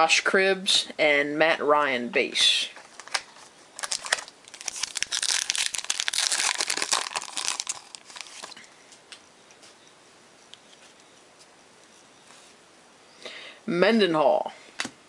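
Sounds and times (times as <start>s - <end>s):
foil wrapper crinkling: 2.8s - 8.7s.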